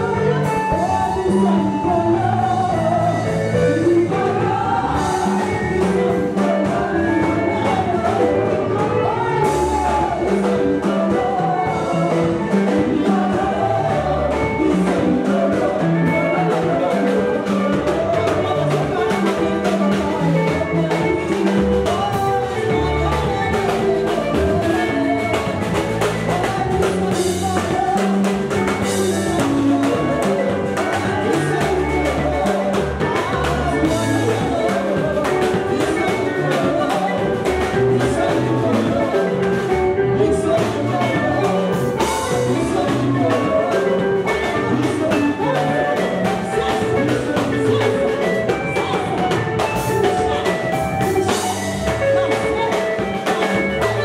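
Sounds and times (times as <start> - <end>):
percussive beat: 0.0 - 54.0
several voices singing: 0.0 - 54.0.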